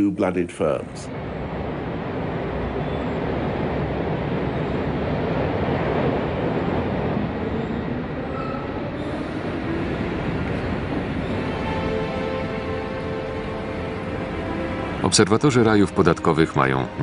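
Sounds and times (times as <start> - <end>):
steady rumble: 0.8 - 8.2.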